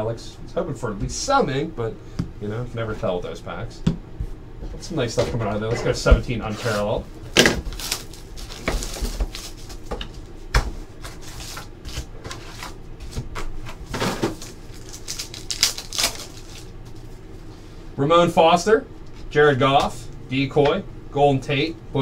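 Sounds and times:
foil pack rustling and crinkling: 6.6 - 10.3, 10.9 - 17.2
foil pack tearing: 6.7 - 9.8, 13.9 - 17.0.

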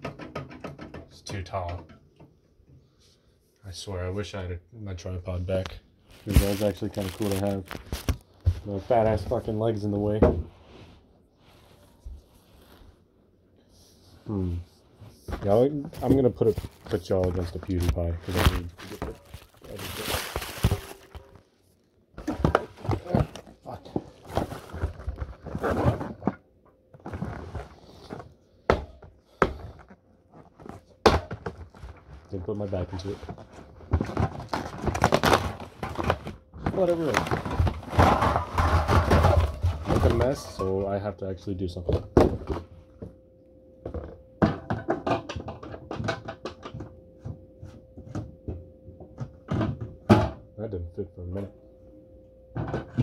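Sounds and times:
faint steady hum: 0.0 - 53.0.

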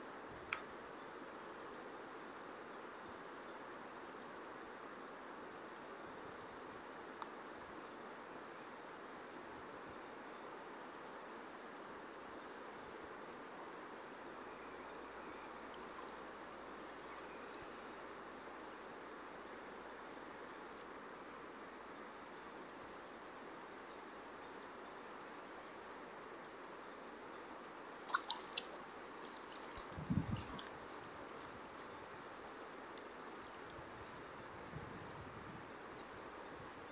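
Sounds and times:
faint ticks: 0.5 - 0.7, 5.4 - 5.7, 7.1 - 7.4, 14.5 - 17.7, 28.1 - 35.0
river water flowing: 10.6 - 34.6.

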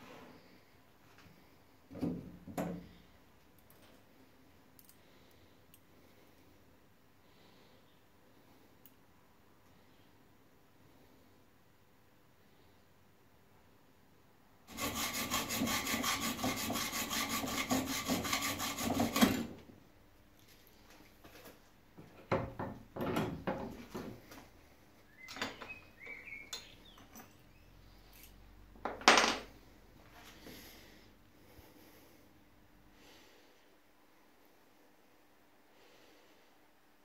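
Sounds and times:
hand tool rasping steel rod: 14.7 - 19.4.

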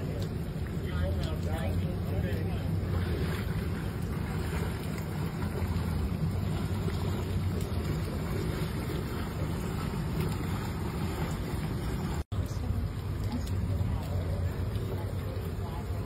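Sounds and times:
heavy rain on water: 0.0 - 16.0.

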